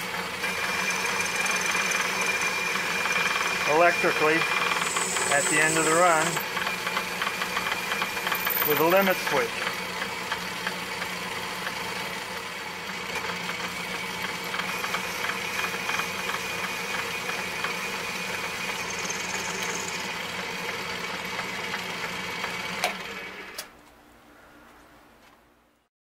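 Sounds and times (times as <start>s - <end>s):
metal lathe humming: 0.0s - 23.3s
small irregular ticks: 18.8s - 20.0s.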